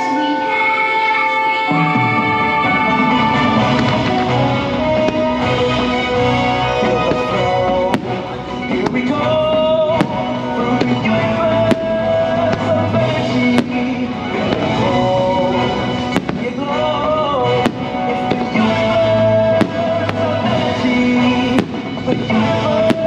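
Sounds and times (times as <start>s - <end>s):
melodic show soundtrack: 0.0s - 23.0s
fireworks bursting: 1.8s - 23.0s.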